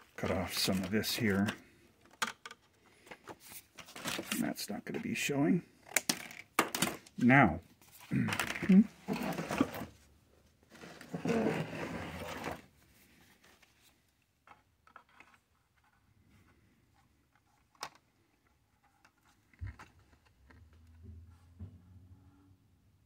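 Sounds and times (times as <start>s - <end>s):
wooden base scraping on workbench: 10.8s - 12.6s.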